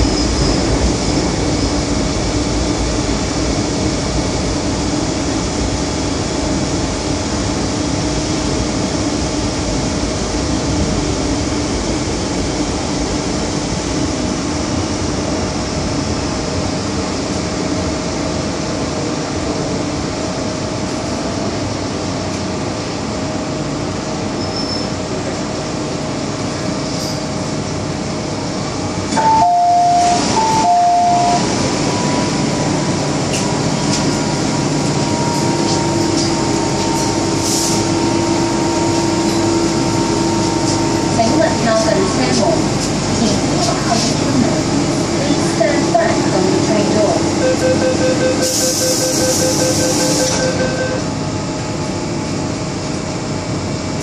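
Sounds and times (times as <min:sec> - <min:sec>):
train carriage running noise: 0:00.0 - 0:54.0
steady whine: 0:28.4 - 0:54.0.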